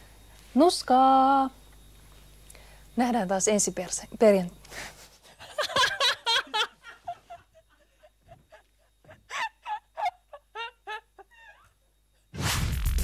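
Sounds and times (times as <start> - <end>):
woman giggling: 5.0 - 11.9.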